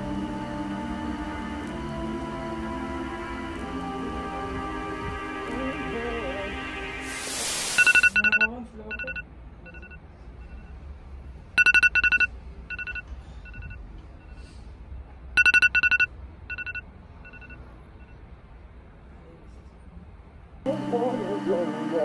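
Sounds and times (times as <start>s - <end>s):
phone alarm beeping: 7.7s - 10.7s, 11.6s - 14.4s, 15.4s - 18.2s.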